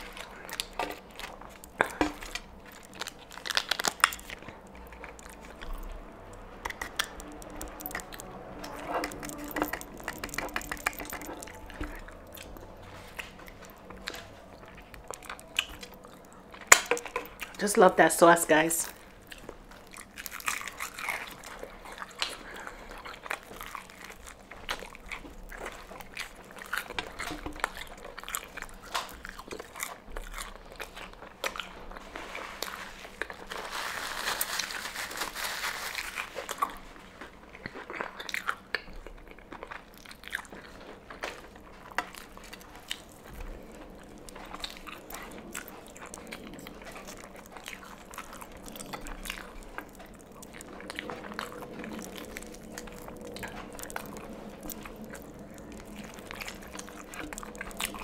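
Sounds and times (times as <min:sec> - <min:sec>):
fried chicken crunching: 0:00.0 - 0:17.8, 0:18.6 - 0:58.0
chewing: 0:00.0 - 0:58.0
paper napkin rustling: 0:32.4 - 0:36.4.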